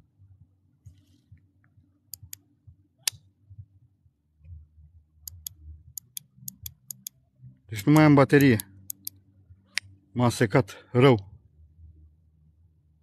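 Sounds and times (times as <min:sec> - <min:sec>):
sharp small clicks: 0:02.2 - 0:02.4, 0:05.3 - 0:07.2, 0:07.8 - 0:09.9.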